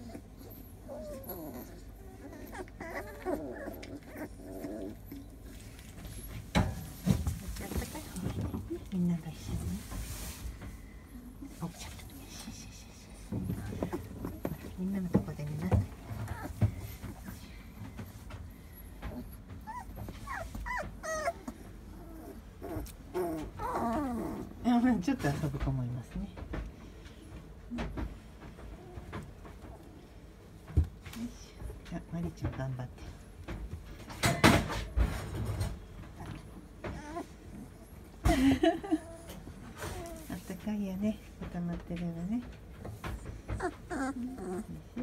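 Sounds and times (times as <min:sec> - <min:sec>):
puppy whimpering and whining: 0:00.0 - 0:06.4, 0:13.5 - 0:14.8, 0:15.6 - 0:17.9, 0:18.9 - 0:24.6, 0:36.2 - 0:38.2, 0:38.9 - 0:40.4, 0:43.0 - 0:45.0.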